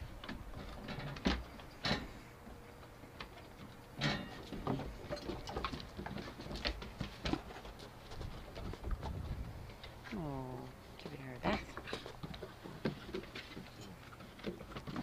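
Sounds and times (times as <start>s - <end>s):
paws tapping on wooden boards: 2.5s - 10.1s, 11.0s - 15.0s.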